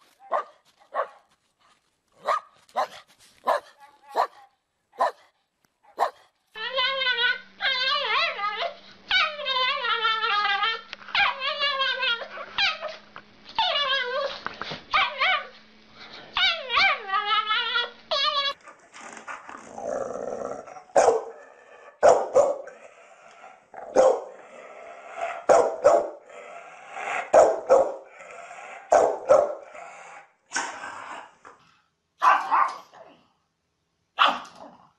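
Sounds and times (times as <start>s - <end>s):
dog barking sharply: 2.2s - 4.4s, 5.9s - 6.2s, 21.0s - 21.3s, 22.0s - 22.6s, 25.5s - 26.1s, 32.2s - 32.8s, 34.2s - 34.5s
small dog yowling: 13.6s - 15.5s, 16.4s - 18.6s.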